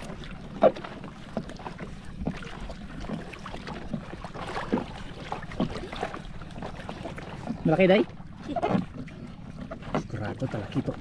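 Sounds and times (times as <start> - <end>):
water slapping boat hull: 0.0 - 11.0.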